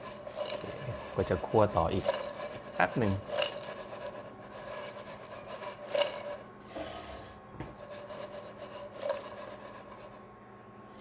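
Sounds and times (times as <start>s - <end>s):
bread cubes rattling in pan: 0.0s - 6.4s, 7.8s - 9.9s.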